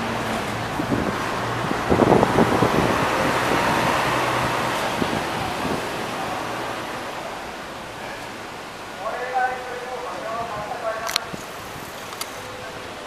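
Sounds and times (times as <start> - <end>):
bus engine hum: 0.0 - 9.0
road noise: 0.0 - 13.0.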